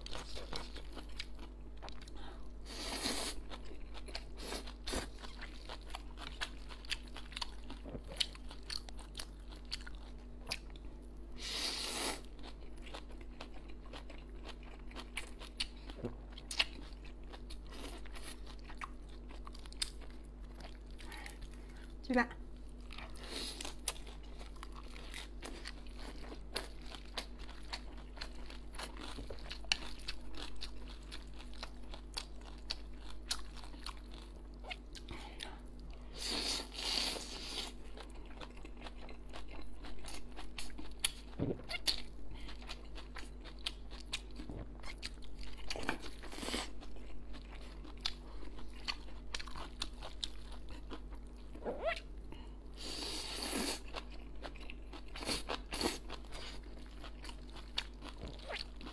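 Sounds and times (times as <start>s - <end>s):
chewing noodles: 0.0s - 22.0s, 22.6s - 52.1s, 52.8s - 58.9s.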